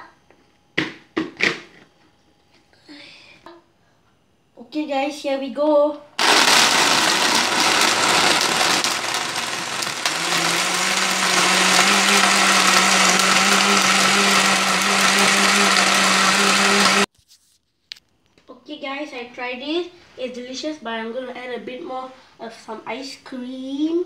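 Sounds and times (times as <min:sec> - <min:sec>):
blender crushing ice: 0:06.2 - 0:17.1.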